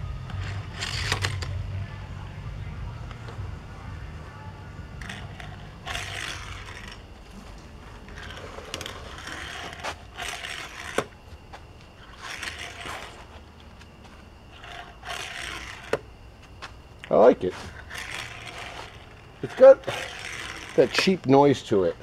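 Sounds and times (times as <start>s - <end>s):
toy car wheels rattling on table: 5.0s - 7.0s, 8.1s - 11.1s, 12.0s - 13.2s, 14.5s - 16.0s, 17.6s - 21.4s.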